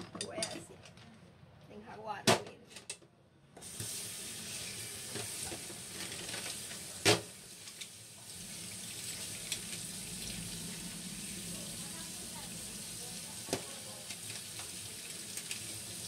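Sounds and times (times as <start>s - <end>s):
tap water running into sink: 3.6s - 16.0s.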